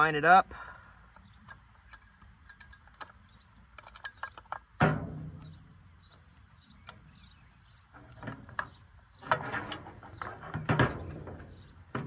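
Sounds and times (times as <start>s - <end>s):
plastic parts clicking and knocking: 1.2s - 5.5s.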